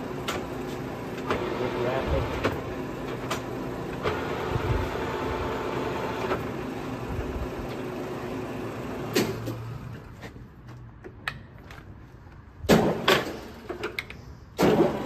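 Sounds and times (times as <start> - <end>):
milling machine running hum: 0.0 - 9.1.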